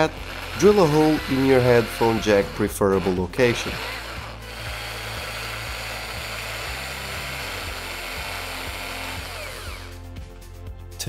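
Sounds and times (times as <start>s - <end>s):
electric drill whining: 0.0s - 10.1s
background music with steady beat: 0.0s - 11.0s.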